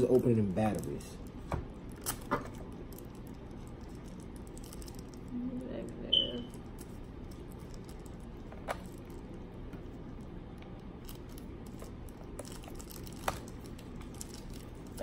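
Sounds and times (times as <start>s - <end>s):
plastic crinkling: 0.0s - 15.0s.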